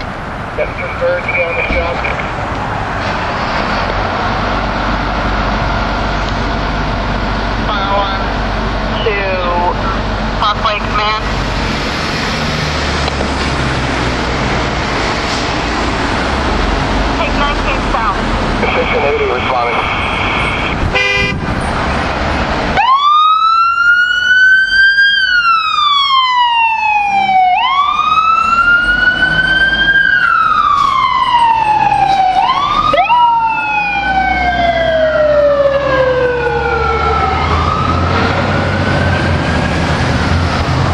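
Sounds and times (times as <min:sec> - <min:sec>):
fire engine siren wailing: 0:00.0 - 0:03.0, 0:03.9 - 0:21.4, 0:22.4 - 0:40.9
truck engine rumble: 0:00.0 - 0:40.9
short horn blast: 0:20.9 - 0:21.4
second siren wailing: 0:22.8 - 0:40.9.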